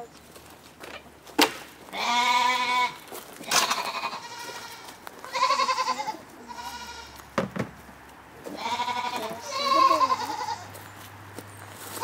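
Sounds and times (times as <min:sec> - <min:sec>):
livestock bleating: 0:01.9 - 0:07.2, 0:08.5 - 0:10.8.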